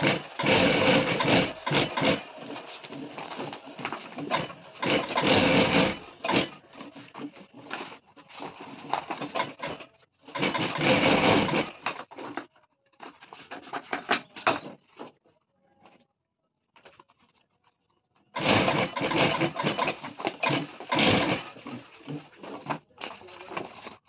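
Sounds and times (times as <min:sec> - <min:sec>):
industrial sewing machine running: 0:00.0 - 0:07.8, 0:08.8 - 0:12.0, 0:18.3 - 0:24.0.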